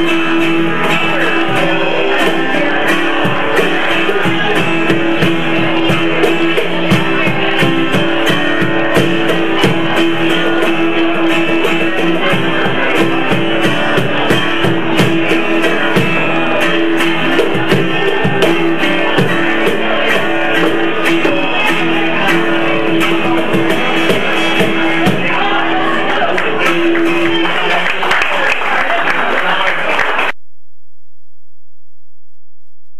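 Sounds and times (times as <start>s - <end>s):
hand drums beating: 0.0s - 25.6s
acoustic guitar strumming: 0.0s - 28.4s.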